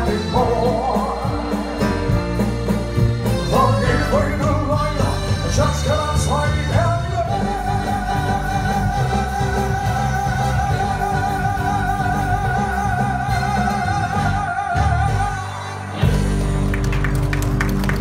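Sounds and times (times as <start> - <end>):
drums: 0.0 - 18.0
live band playing: 0.0 - 18.0.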